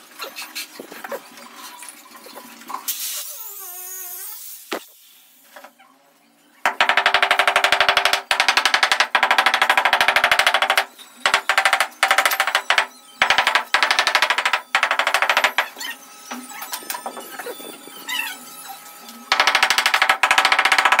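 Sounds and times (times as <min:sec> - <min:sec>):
wooden pole knocking on stone: 0:06.7 - 0:15.6.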